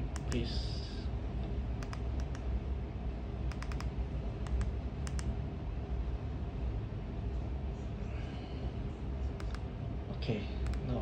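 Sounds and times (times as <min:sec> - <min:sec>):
steady low hum: 0:00.0 - 0:11.0
remote control buttons clicking: 0:01.8 - 0:02.4, 0:03.5 - 0:05.3, 0:09.4 - 0:09.6.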